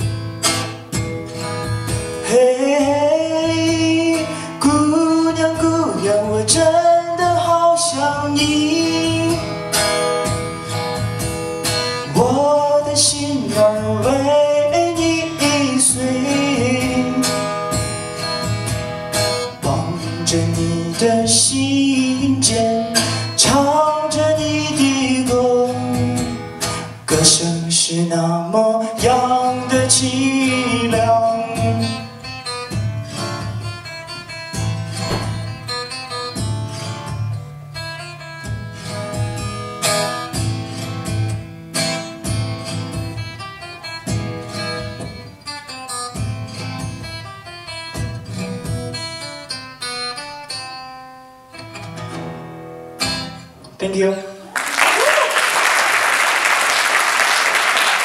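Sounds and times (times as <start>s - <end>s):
acoustic guitar strumming: 0.0s - 54.2s
man singing: 2.1s - 9.6s, 12.0s - 17.6s, 19.5s - 32.2s.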